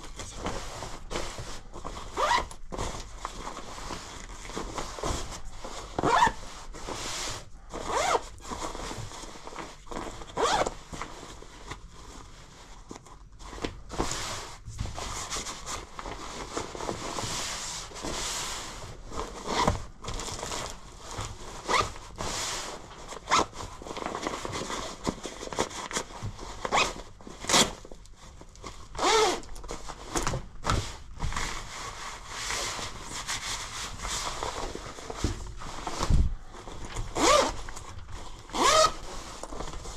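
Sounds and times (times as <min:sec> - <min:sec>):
fabric rustling and crinkling: 0:00.0 - 0:39.9
zippers: 0:02.0 - 0:02.5, 0:06.0 - 0:06.5, 0:07.8 - 0:08.6, 0:10.3 - 0:10.8, 0:29.0 - 0:29.5, 0:37.1 - 0:37.8, 0:38.4 - 0:39.4.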